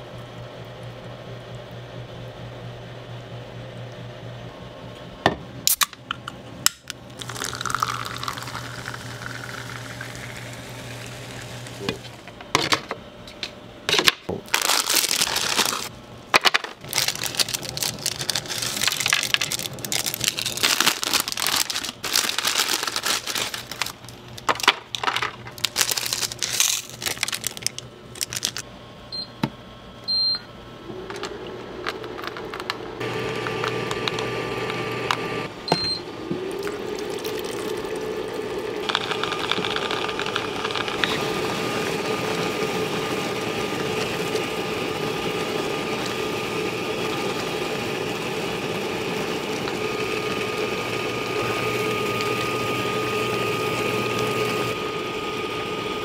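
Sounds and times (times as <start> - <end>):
low machine hum: 0.0 - 56.0
packaging crinkling: 7.2 - 9.6, 14.4 - 28.6.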